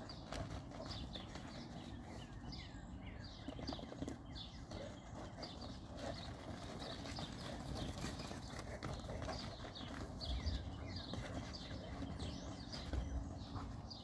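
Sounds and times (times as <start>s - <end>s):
birds chirping: 0.0s - 14.0s
paws scuffling on dirt: 0.0s - 14.0s.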